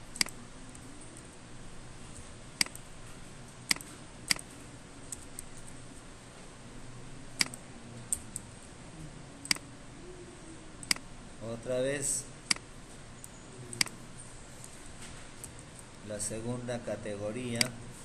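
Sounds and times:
faint room noise: 0.0 - 18.0
keyboard and mouse clicks: 0.1 - 0.4, 2.6 - 2.9, 3.6 - 5.5, 7.4 - 8.4, 12.5 - 14.0.

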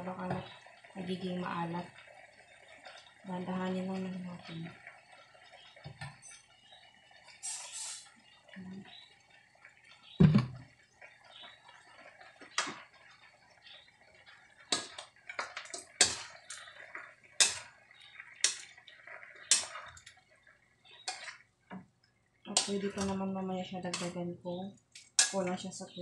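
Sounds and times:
dull thump: 10.2 - 10.5
metal ladle scraping wok: 19.4 - 20.1, 21.0 - 21.5.

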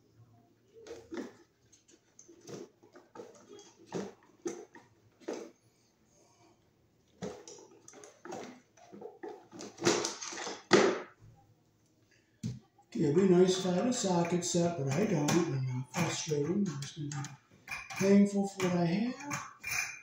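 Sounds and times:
tools clicking and tapping: 16.7 - 20.0.

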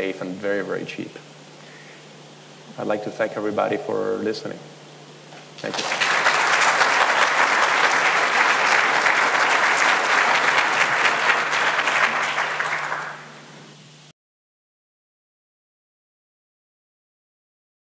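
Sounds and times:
audience applauding: 5.6 - 13.5.

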